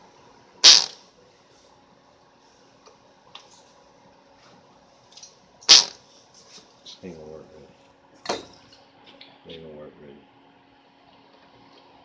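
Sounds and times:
model engine short bursts: 0:00.6 - 0:01.0, 0:05.7 - 0:06.0.

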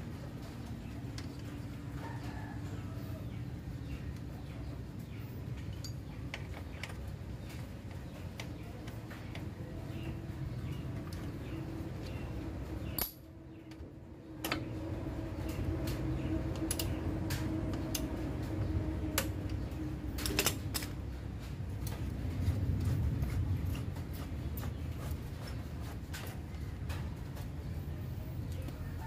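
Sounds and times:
low background hum: 0:00.0 - 0:29.0
hand tool clinking on metal bolts: 0:13.0 - 0:13.3.

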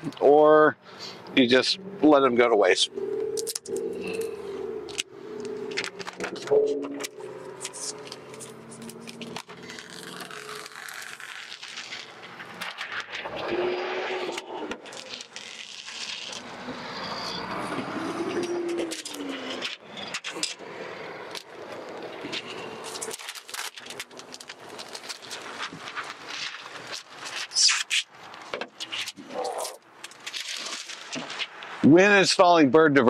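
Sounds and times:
tool scraping film on glass: 0:04.9 - 0:31.8
short squeaks: 0:06.7 - 0:20.4.

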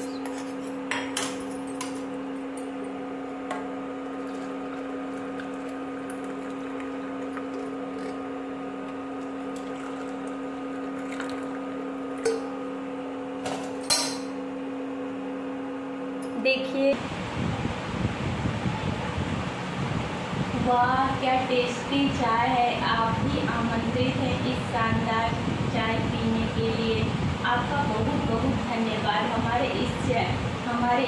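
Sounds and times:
steady mechanical hum: 0:00.0 - 0:31.0
tea pouring through strainer: 0:04.1 - 0:12.0.

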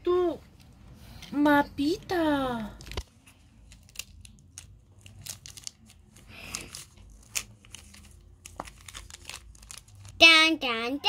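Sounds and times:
plastic wrapper crinkling: 0:02.6 - 0:10.2.

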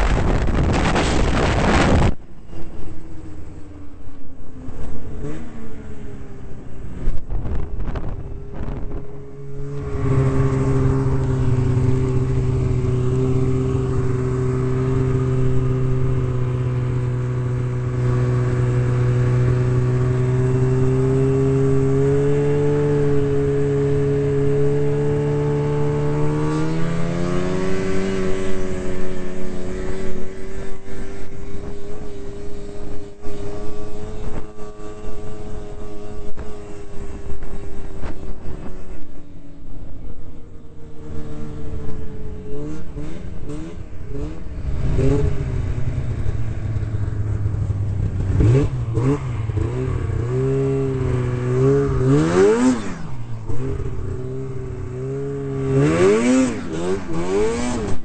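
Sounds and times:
wind rumble on microphone: 0:00.0 - 0:03.8, 0:06.8 - 0:23.4
snowmobile engine drone: 0:00.0 - 0:58.0.

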